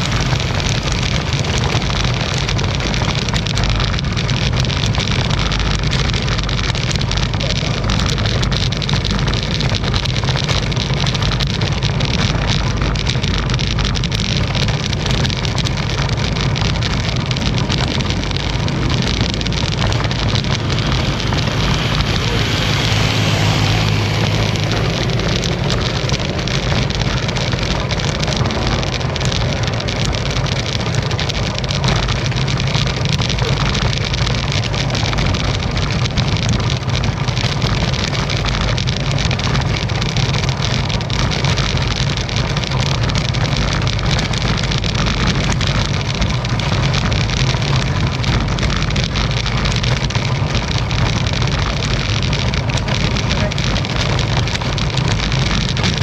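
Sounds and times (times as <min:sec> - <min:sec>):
bike rattles and knocks: 0:00.0 - 0:56.0
bike tyres rumbling on road: 0:00.0 - 0:56.0.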